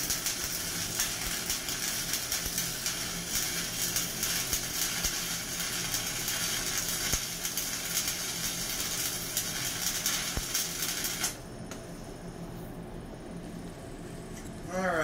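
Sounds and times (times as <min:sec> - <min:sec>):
welding arc crackling hiss: 0:00.0 - 0:11.8
welding arc sharp pops: 0:00.0 - 0:11.8.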